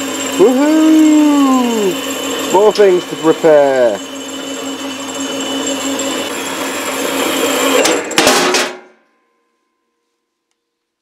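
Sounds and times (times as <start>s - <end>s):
bandsaw humming and whining: 0.0s - 8.3s.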